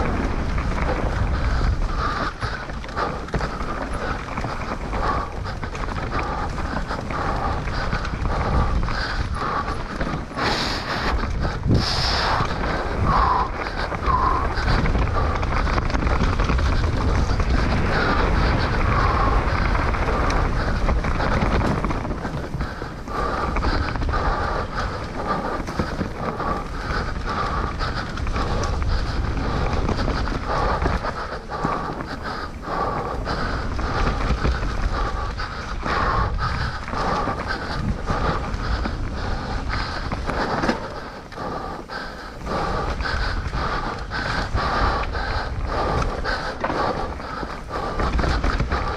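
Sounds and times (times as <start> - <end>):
bike rumble on dirt trail: 0.0 - 48.9
wind buffeting microphone: 0.0 - 48.9
bike knocks and rattles: 12.4 - 32.2.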